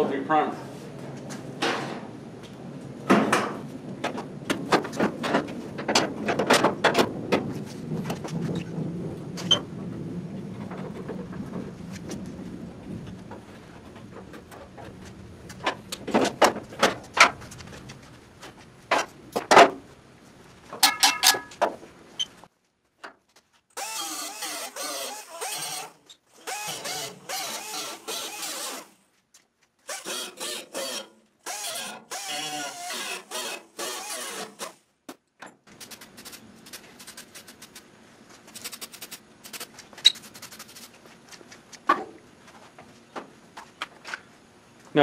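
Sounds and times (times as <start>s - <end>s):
sheet metal clanking: 20.8s - 21.7s
air grinder grinding metal: 29.9s - 34.8s.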